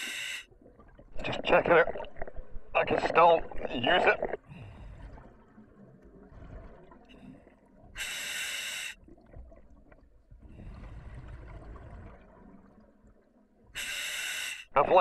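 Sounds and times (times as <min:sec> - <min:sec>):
diver inhaling hiss: 0:00.0 - 0:00.5, 0:08.0 - 0:09.0, 0:13.8 - 0:14.7
bubbling exhaled air: 0:10.4 - 0:12.7.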